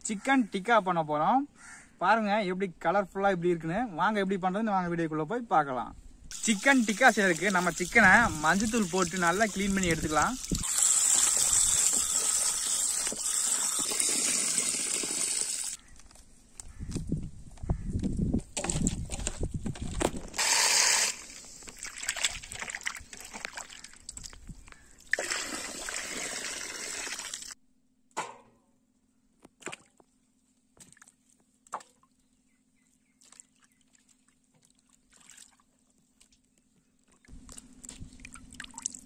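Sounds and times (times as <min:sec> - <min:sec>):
water dripping in steel basin: 0:06.3 - 0:14.0, 0:38.2 - 0:39.0
water splashing and sloshing: 0:06.3 - 0:14.3, 0:21.3 - 0:27.5, 0:29.5 - 0:32.2, 0:33.1 - 0:39.0.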